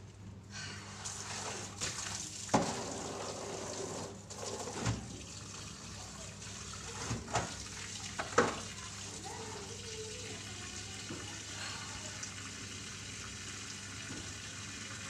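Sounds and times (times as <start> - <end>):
clothes washed by hand: 0.7 - 12.8
water running from tap: 1.0 - 15.0.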